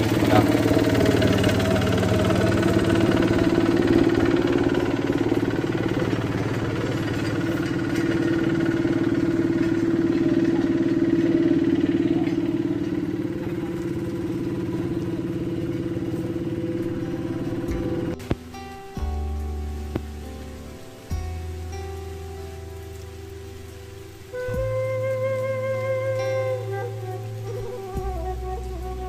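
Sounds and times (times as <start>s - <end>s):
asphalt roller engine running: 0.0s - 29.0s.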